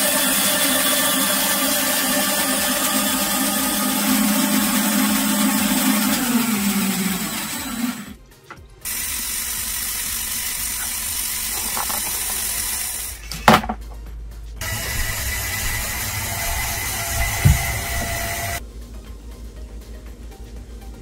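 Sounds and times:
motors and gears whirring: 0:00.0 - 0:13.6, 0:14.6 - 0:18.6
whine falling in pitch: 0:14.6 - 0:18.6.

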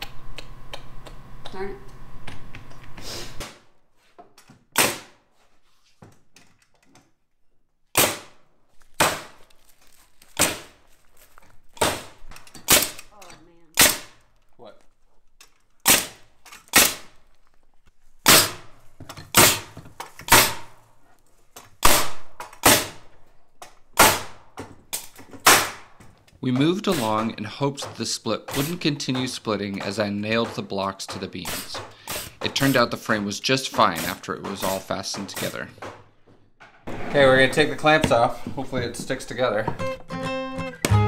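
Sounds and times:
nail gun shots: 0:04.7 - 0:05.2, 0:07.9 - 0:09.4, 0:10.4 - 0:10.8, 0:11.8 - 0:13.1, 0:13.7 - 0:14.2, 0:15.8 - 0:17.2, 0:18.2 - 0:20.8, 0:21.8 - 0:23.1, 0:24.0 - 0:26.0, 0:28.5 - 0:29.2, 0:30.4 - 0:32.9.

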